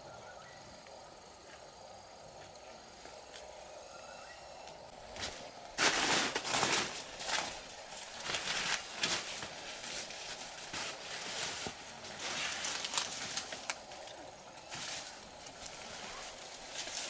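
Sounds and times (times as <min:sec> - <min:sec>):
dry leaves rustling: 0:05.0 - 0:17.0.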